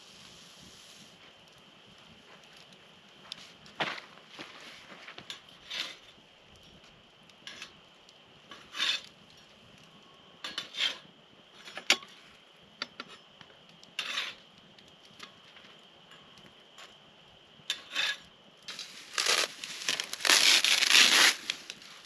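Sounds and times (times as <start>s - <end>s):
metal spatula scraping grill grate: 4.6s - 6.1s, 7.4s - 7.8s, 8.5s - 9.1s, 10.4s - 12.2s, 13.9s - 14.4s, 17.7s - 22.0s.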